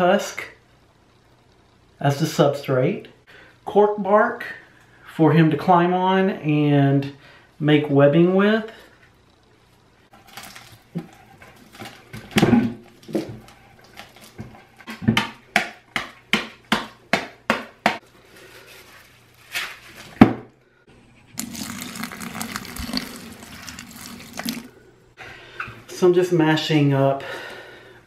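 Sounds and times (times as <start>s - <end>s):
plastic wrapper crinkling: 10.2s - 12.1s
water pouring into tank: 21.4s - 24.7s.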